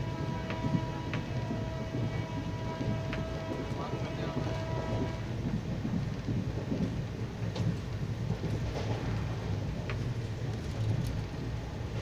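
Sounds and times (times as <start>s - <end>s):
train coach rumbling on track: 0.0s - 12.0s.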